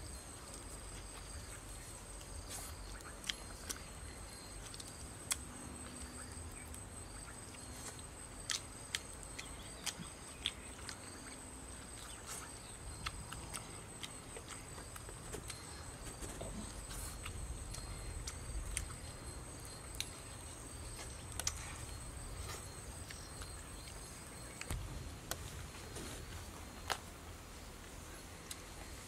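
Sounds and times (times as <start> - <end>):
birds being torn and eaten: 0.3 - 27.2.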